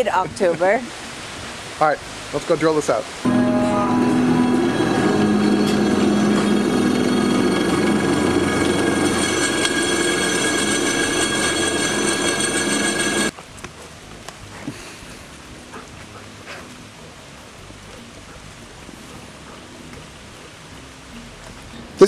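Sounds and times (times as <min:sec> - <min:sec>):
drill press grinding whine: 0:03.3 - 0:13.3.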